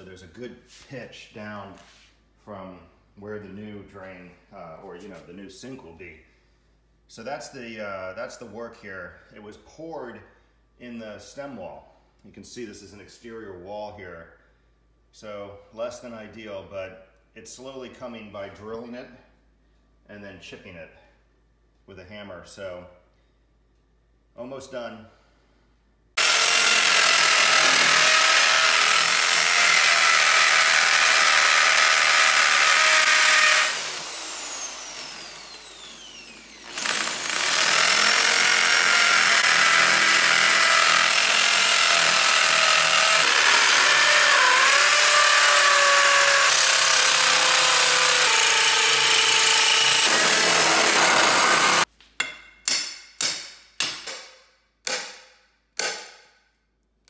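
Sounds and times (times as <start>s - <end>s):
electric drill boring concrete: 26.2s - 51.9s
hammer striking concrete: 27.5s - 28.2s, 52.2s - 56.3s.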